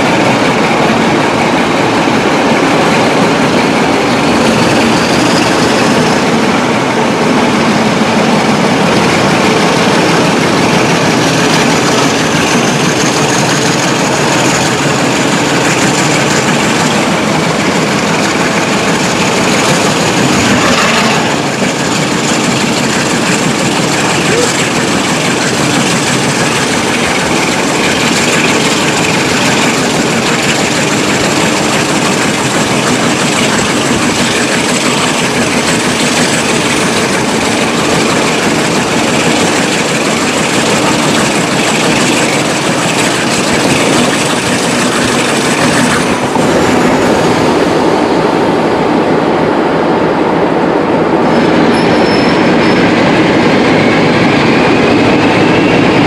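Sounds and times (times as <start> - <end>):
wheels clattering on rails: 0.0 - 48.6
diesel locomotive running: 0.0 - 56.0
locomotive engine whine: 0.0 - 56.0
wind rush: 44.0 - 56.0.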